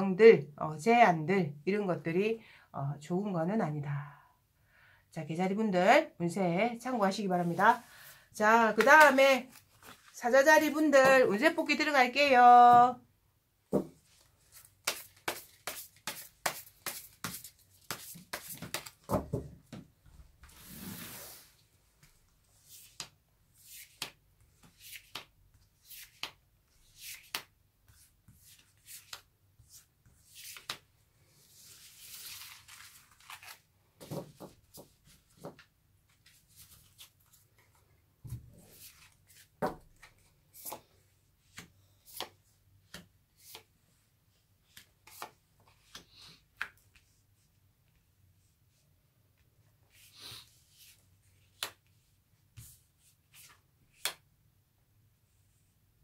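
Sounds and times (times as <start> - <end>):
cards sliding across cloth: 20.4 - 27.5.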